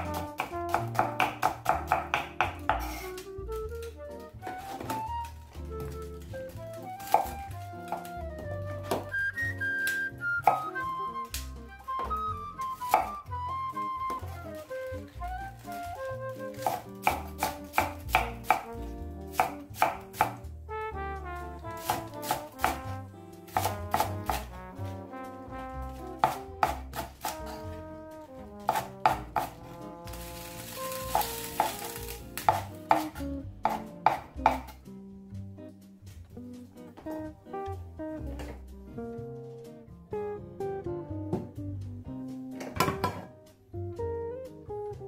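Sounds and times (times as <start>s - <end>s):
knife chopping on cutting board: 0.0s - 3.2s, 7.0s - 8.1s, 10.4s - 10.8s, 12.8s - 13.2s, 16.5s - 20.5s, 21.7s - 24.6s, 26.0s - 27.8s, 28.4s - 34.8s
background music: 0.0s - 45.0s.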